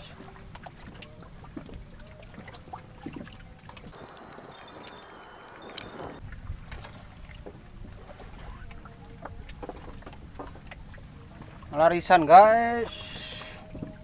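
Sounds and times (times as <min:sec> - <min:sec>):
water trickling and lapping: 0:00.0 - 0:14.0
fishing gear clicks and knocks: 0:03.8 - 0:06.2.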